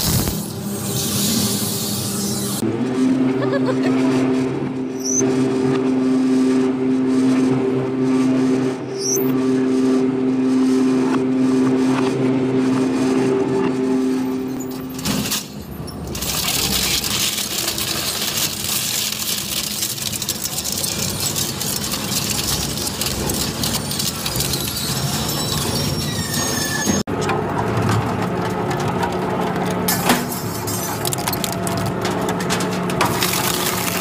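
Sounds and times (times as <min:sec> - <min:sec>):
shredder grinding metal bar: 0:12.4 - 0:34.0
shredder motor humming: 0:16.1 - 0:25.4, 0:31.0 - 0:34.0
shredder crunching bowl: 0:16.1 - 0:25.7, 0:33.0 - 0:34.0.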